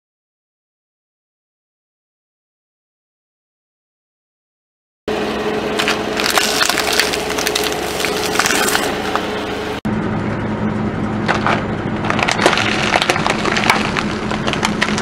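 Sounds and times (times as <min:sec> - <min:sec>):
car engine low hum: 0:05.1 - 0:15.0
cups and sticks crackling and crunching: 0:05.7 - 0:09.4, 0:11.3 - 0:15.0.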